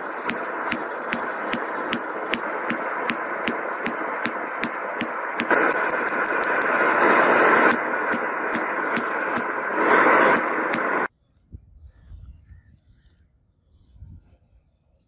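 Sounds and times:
loud rushing noise: 0:00.0 - 0:11.1.

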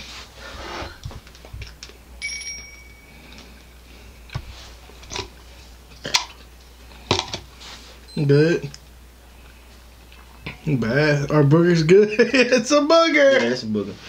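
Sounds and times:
bell-like ding: 0:02.2 - 0:03.5.

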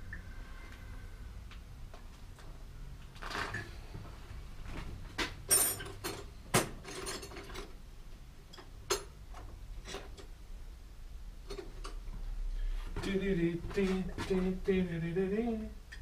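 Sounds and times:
tools clicking and clanking: 0:05.2 - 0:07.8, 0:08.4 - 0:10.4.

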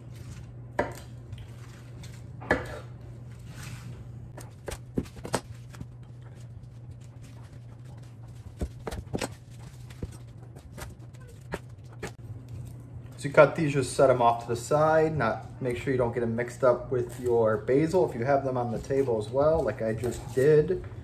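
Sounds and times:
steady low hum: 0:00.0 - 0:21.0.

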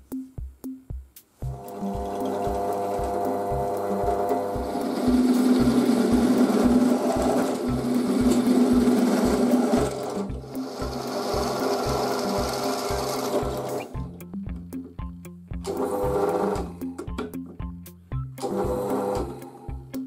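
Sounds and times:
background music with steady beat: 0:00.0 - 0:20.0
drill press boring metal: 0:01.6 - 0:13.9.

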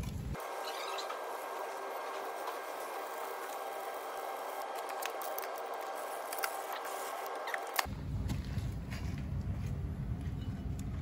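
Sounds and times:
aerosol can spraying: 0:00.5 - 0:07.9.

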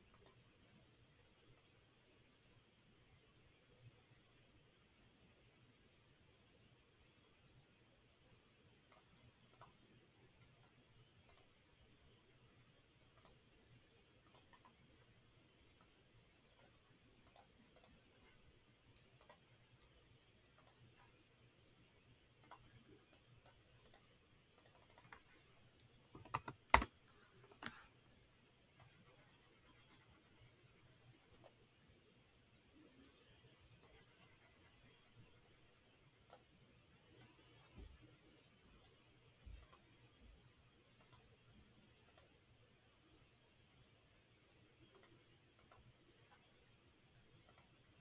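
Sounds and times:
computer mouse and keyboard clicks: 0:00.1 - 0:00.4, 0:08.9 - 0:09.8, 0:14.2 - 0:14.8, 0:16.6 - 0:18.0, 0:20.6 - 0:20.8, 0:24.6 - 0:25.2, 0:26.2 - 0:26.9, 0:39.6 - 0:39.8, 0:41.0 - 0:41.3, 0:42.1 - 0:42.3, 0:44.9 - 0:45.9, 0:47.5 - 0:47.7.

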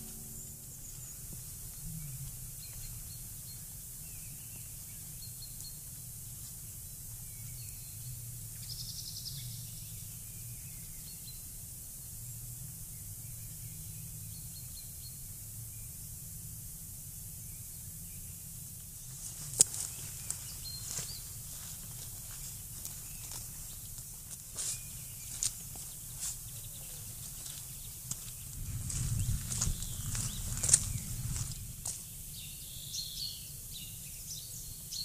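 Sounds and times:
faint bird chirps: 0:00.0 - 0:06.5
steady outdoor hiss: 0:00.0 - 0:35.0
footsteps on damp forest floor: 0:19.0 - 0:32.2.

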